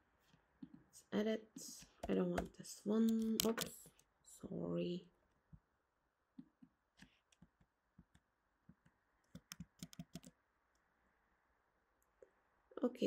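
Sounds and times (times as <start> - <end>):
keyboard keystrokes: 3.1 - 3.7, 9.3 - 10.3.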